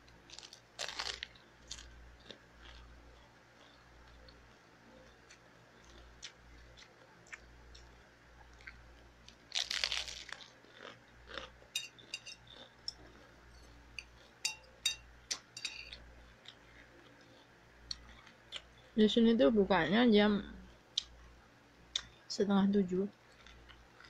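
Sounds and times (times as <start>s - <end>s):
chewing clicks and crunches: 0.1s - 4.4s, 5.0s - 14.4s, 15.3s - 18.9s, 23.2s - 24.0s.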